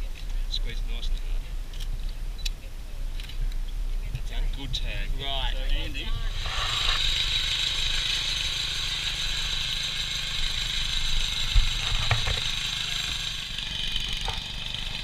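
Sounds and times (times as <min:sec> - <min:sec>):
small petrol engine putter: 0:06.3 - 0:15.0
tracks and frame rattling: 0:10.0 - 0:15.0.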